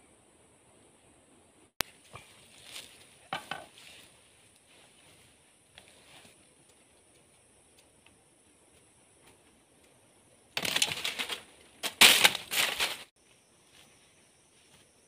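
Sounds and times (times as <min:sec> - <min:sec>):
bamboo sticks rustling on dry leaves: 0:01.9 - 0:06.4, 0:10.6 - 0:13.1.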